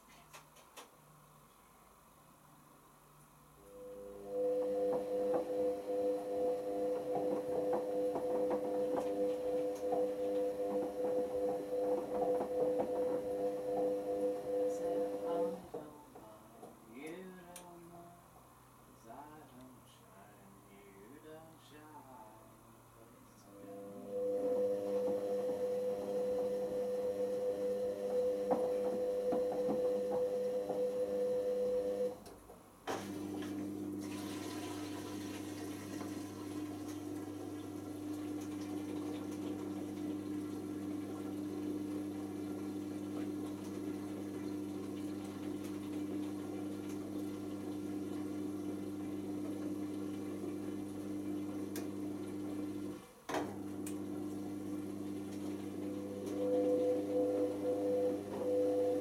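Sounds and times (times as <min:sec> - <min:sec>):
washing machine motor whine: 0:03.6 - 0:16.7, 0:23.4 - 0:32.3, 0:32.9 - 0:59.0
drain pump humming: 0:03.6 - 0:18.0, 0:23.5 - 0:59.0
water in drum: 0:04.5 - 0:16.8, 0:32.9 - 0:53.0, 0:53.6 - 0:59.0.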